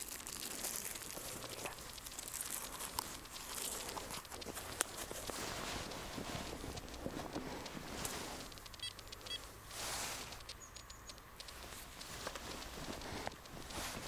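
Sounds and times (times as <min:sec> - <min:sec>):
footsteps crunching through snow: 0:04.4 - 0:08.5
short high beeps: 0:08.8 - 0:09.4.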